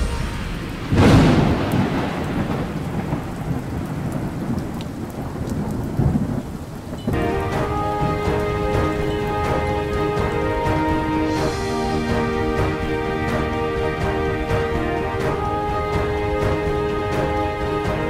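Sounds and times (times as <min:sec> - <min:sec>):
music: 0:00.0 - 0:01.2, 0:07.1 - 0:18.0
heavy rain: 0:00.0 - 0:18.0
thunder rumbling: 0:00.0 - 0:18.0.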